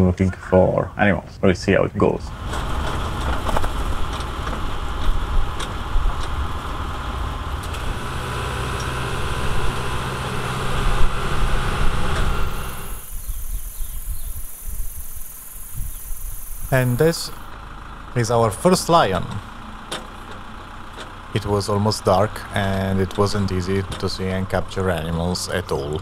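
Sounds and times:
road and wind noise: 0:00.0 - 0:26.0
low rumble: 0:02.2 - 0:19.5
truck engine running: 0:02.3 - 0:26.0
steady high hiss: 0:12.3 - 0:17.5.

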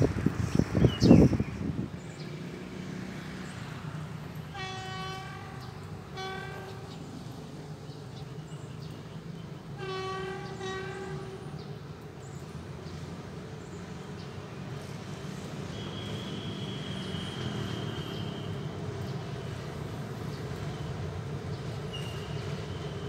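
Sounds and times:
locomotive horn blasts: 0:04.5 - 0:07.1, 0:09.7 - 0:11.6, 0:15.7 - 0:18.7.

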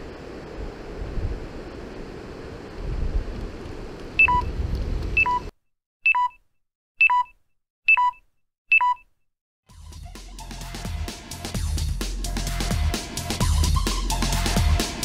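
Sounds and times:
wind: 0:00.0 - 0:05.5
electronic beeps: 0:04.2 - 0:04.5, 0:05.2 - 0:05.5, 0:06.1 - 0:06.4, 0:07.0 - 0:07.3, 0:07.9 - 0:09.0.

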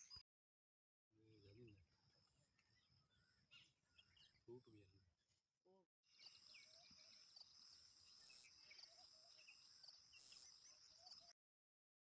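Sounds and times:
bird chirps: 0:00.0 - 0:00.2, 0:01.3 - 0:05.0, 0:06.1 - 0:11.4.

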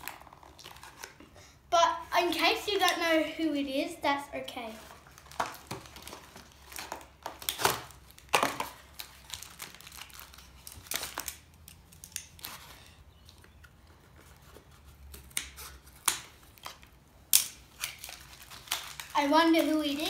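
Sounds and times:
paper and cardboard crinkling: 0:00.0 - 0:01.3, 0:04.4 - 0:16.9, 0:17.7 - 0:20.0.

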